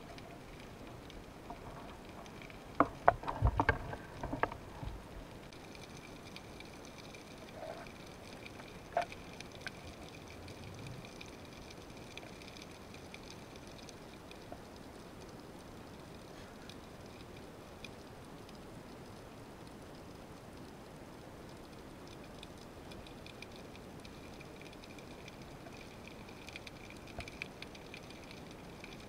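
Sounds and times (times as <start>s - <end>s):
faint underwater hiss: 0.0s - 29.0s
sharp underwater clicks: 21.5s - 29.0s.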